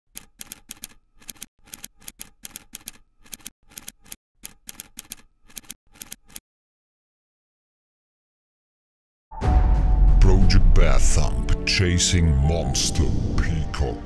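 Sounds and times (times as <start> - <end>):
typewriter keys clacking: 0.1 - 6.4.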